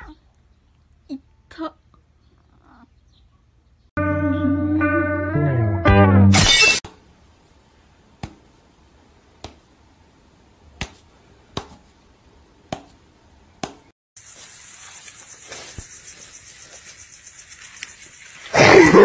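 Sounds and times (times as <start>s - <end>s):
steady hiss: 14.2s - 18.8s.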